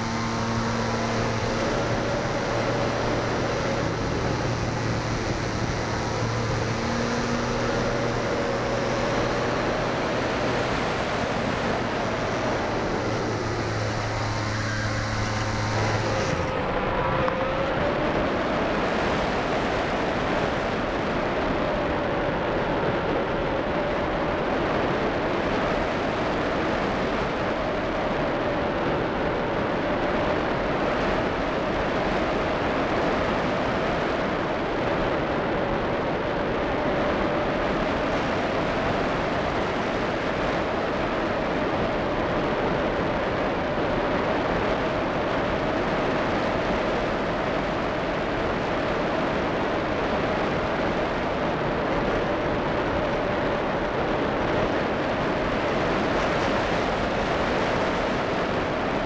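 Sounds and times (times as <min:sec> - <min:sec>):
high hiss: 0:00.0 - 0:17.6
low hum: 0:00.0 - 0:19.1
airflow rushing over microphone: 0:00.0 - 0:20.6.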